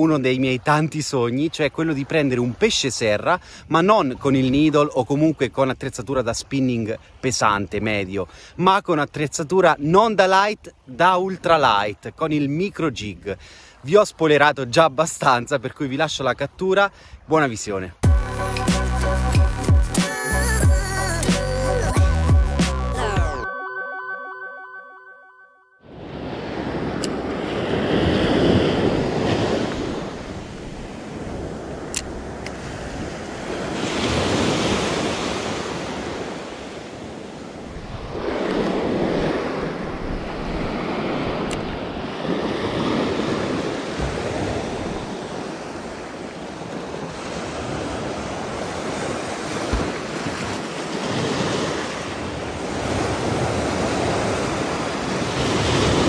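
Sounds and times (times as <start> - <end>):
small waves breaking on beach: 25.9 - 56.0.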